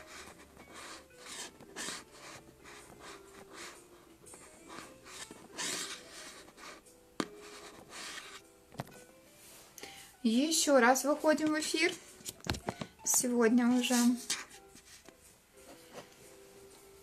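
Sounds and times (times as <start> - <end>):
faint rustling and rubbing: 9.3 - 9.8, 13.7 - 17.0.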